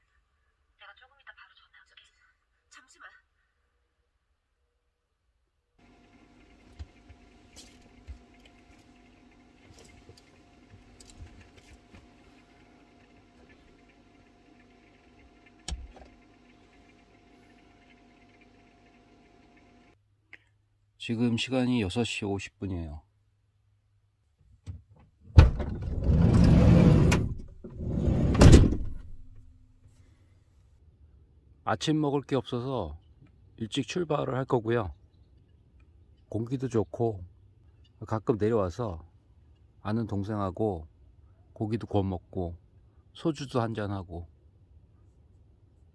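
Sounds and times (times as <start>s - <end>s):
steady low hum: 5.8s - 20.0s
sliding door rolling open: 25.4s - 29.3s
door clunk: 25.4s - 29.4s.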